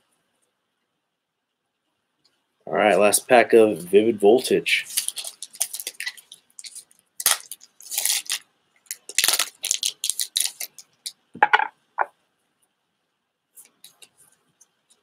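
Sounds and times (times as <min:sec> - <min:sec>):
foil wrapper crinkling and tearing: 0:04.4 - 0:11.2.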